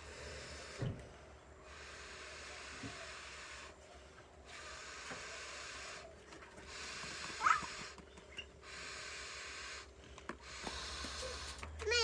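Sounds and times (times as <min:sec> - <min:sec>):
child squealing: 0:07.4 - 0:07.7.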